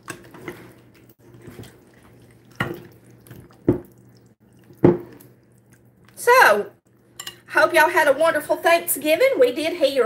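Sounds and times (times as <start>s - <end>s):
spoon stirring wet filling: 0.0s - 7.6s.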